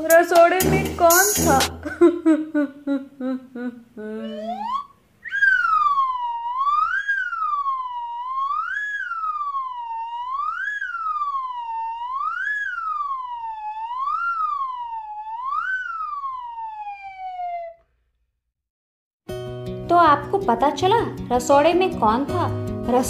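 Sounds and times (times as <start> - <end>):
siren wailing: 4.2 - 17.8.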